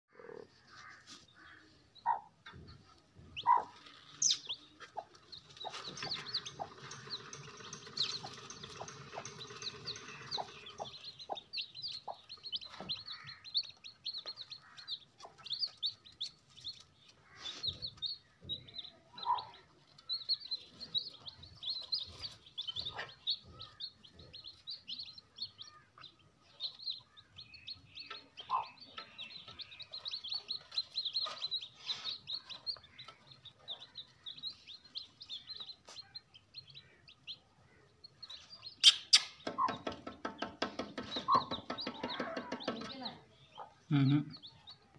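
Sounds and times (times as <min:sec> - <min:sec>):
chicks peeping: 0:00.2 - 0:44.9.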